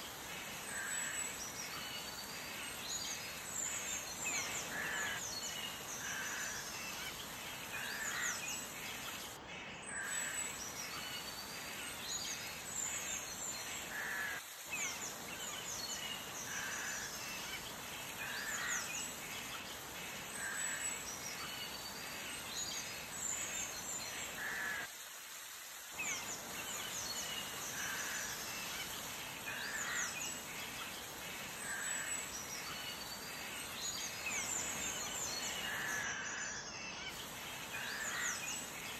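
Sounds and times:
steady hiss: 0:00.0 - 0:38.9
small birds chirping: 0:25.7 - 0:38.9.

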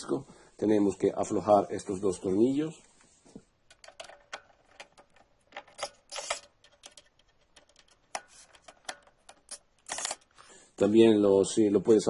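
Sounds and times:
cordless screwdriver: 0:05.8 - 0:06.5, 0:09.5 - 0:10.3.

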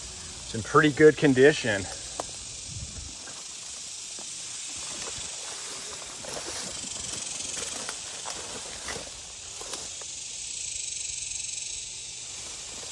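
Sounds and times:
insects calling in grass: 0:00.0 - 0:12.9
steps rustling through tall grass: 0:02.0 - 0:10.2, 0:12.1 - 0:12.9.

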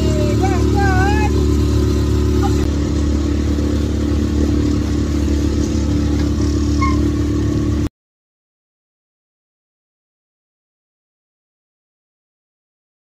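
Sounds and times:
engine humming: 0:00.0 - 0:07.9.

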